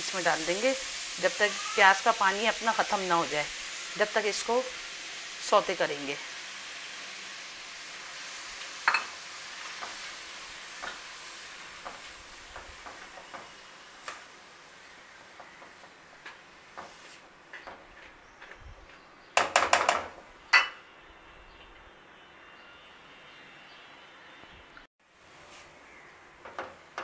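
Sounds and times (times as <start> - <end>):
vegetables sizzling in oil: 0.0 - 18.0.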